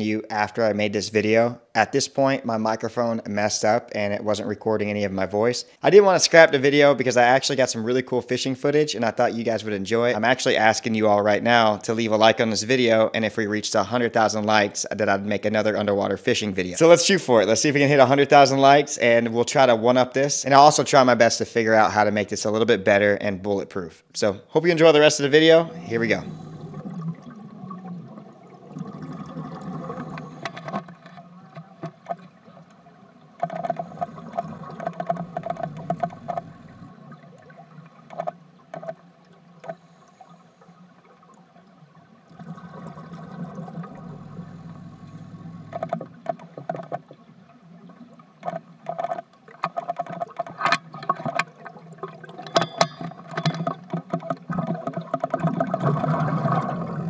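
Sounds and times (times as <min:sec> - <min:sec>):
underwater breathing bubbles gurgling: 0:25.5 - 0:48.8, 0:50.3 - 0:57.0.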